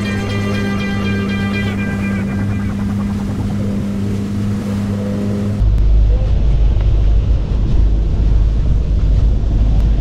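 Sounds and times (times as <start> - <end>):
boat engine running: 0.0 - 6.0
background music with low drone: 0.0 - 10.0
wind rumble on microphone: 2.5 - 10.0.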